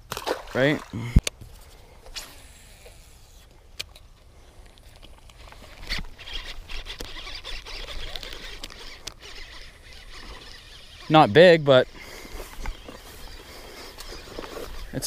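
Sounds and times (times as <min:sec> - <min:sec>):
tall grass rustling: 0:04.4 - 0:15.0.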